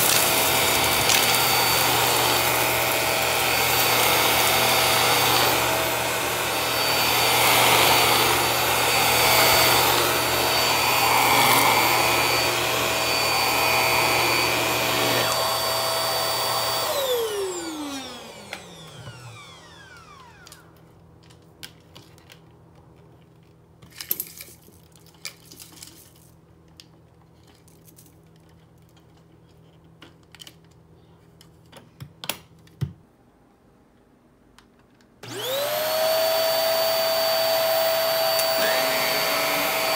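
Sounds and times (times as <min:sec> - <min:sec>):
vacuum cleaner motor whine: 0:00.0 - 0:20.8, 0:35.2 - 0:39.9.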